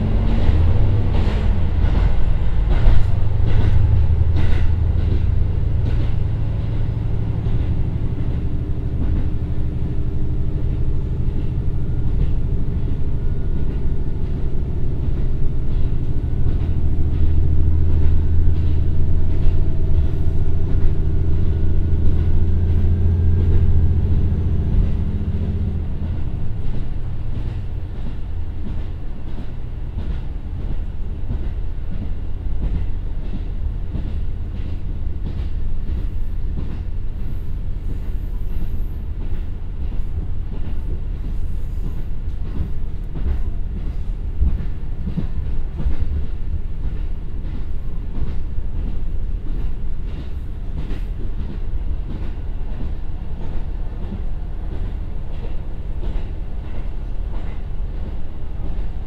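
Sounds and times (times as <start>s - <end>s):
diesel engine droning low: 0.0s - 28.0s
rail-joint clicks: 0.0s - 59.0s
wheels rumbling on rails: 0.0s - 59.0s.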